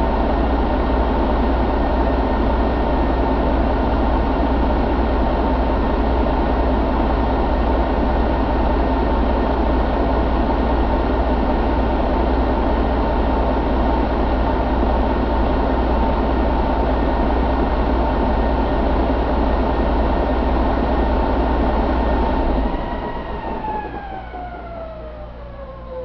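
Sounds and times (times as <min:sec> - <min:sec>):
diesel engine running: 0:00.0 - 0:26.0
high whine spinning down: 0:20.5 - 0:26.0.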